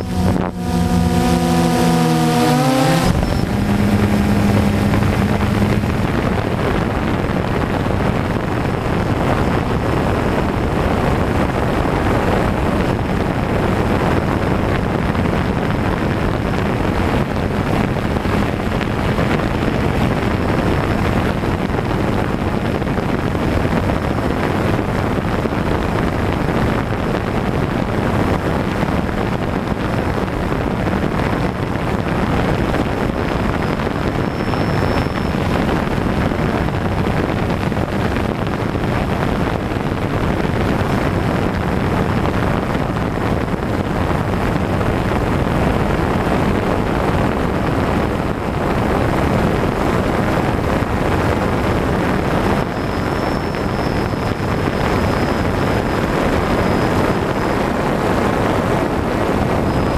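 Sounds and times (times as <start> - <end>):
drone motors buzzing whine: 0.0 - 6.9, 33.0 - 36.1, 51.9 - 59.9
propeller noise and wind: 0.0 - 59.9.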